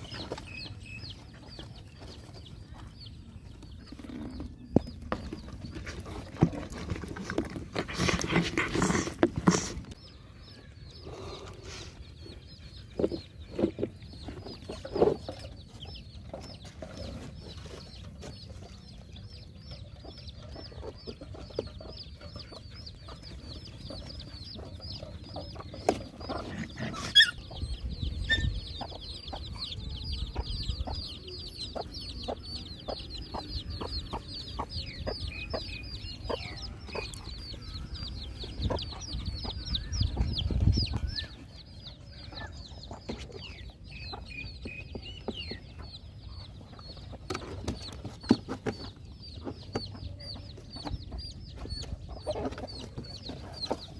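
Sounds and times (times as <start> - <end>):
chickens clucking: 0.0 - 53.9.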